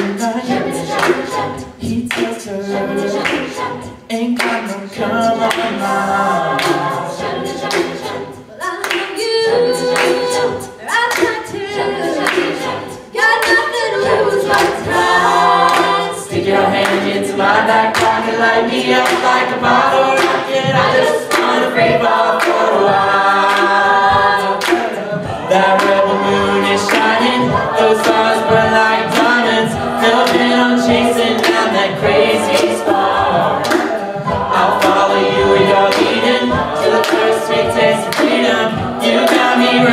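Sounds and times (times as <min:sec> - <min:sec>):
group singing backing harmonies: 0:00.0 - 0:39.9
rhythmic percussive beat: 0:00.0 - 0:39.9.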